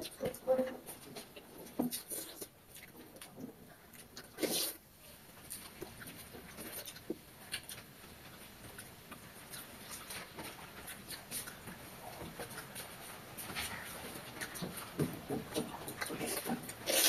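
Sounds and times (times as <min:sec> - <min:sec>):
wet chewing and lip-smacking: 0:00.0 - 0:17.0.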